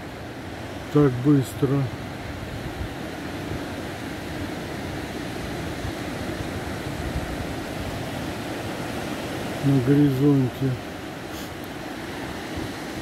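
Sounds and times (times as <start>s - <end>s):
surf breaking on sandy shore: 0.0s - 13.0s
wind buffeting microphone: 2.2s - 9.6s.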